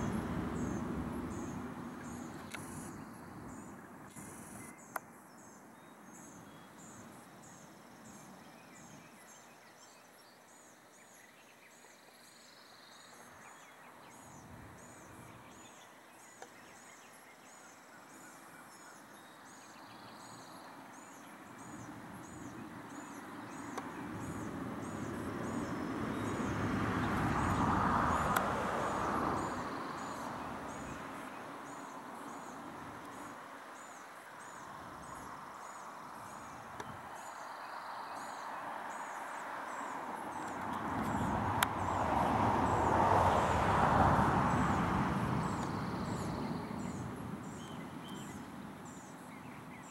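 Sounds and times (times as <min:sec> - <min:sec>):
distant passing vehicle: 0:00.0 - 0:03.6, 0:21.6 - 0:33.5, 0:38.6 - 0:49.2.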